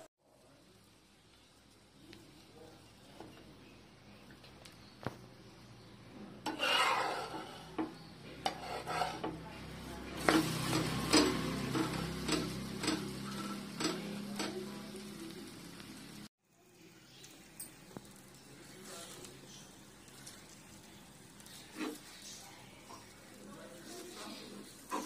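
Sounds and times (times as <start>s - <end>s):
soft sizzle of frying: 0.0s - 25.0s
spatula scraping frying pan: 6.3s - 15.0s, 21.4s - 23.2s, 23.8s - 25.0s.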